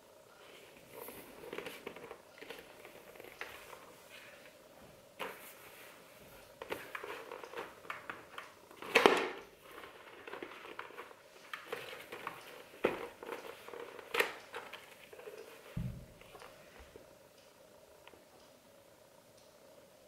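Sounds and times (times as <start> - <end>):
helmet liner rustling and scraping: 0.4 - 4.5, 5.2 - 16.7.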